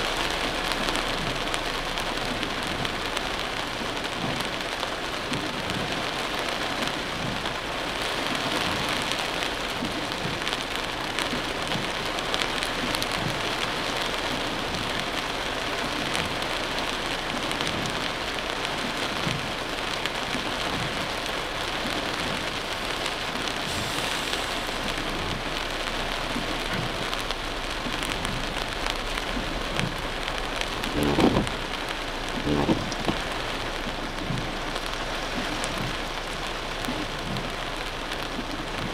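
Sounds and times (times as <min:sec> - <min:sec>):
heavy rain on car windshield: 0:00.0 - 0:38.9
dull thumps: 0:31.0 - 0:31.6.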